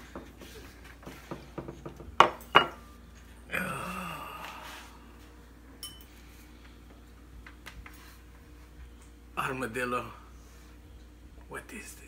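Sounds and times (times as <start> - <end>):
plate clinking on table: 2.2 - 2.8
man's drawn-out vocal sound: 3.5 - 5.0.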